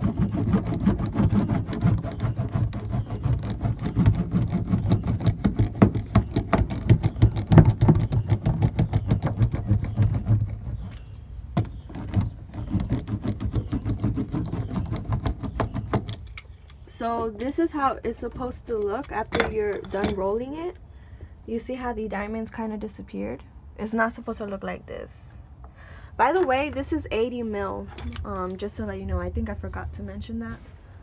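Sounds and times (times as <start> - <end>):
hand roller crinkling over foil mat: 0.0 - 8.4.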